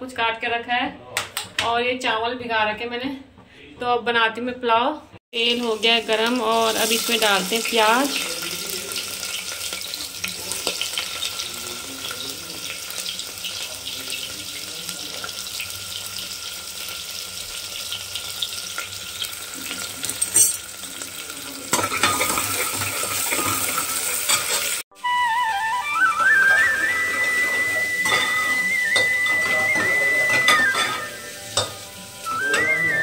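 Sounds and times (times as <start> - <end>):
onions sizzling in hot oil: 5.4 - 24.8, 25.8 - 33.0.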